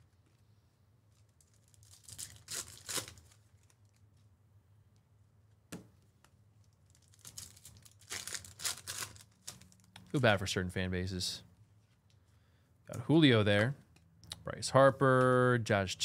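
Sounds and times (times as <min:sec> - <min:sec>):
foil wrapper tearing and crinkling: 0:01.1 - 0:04.0, 0:06.8 - 0:09.9.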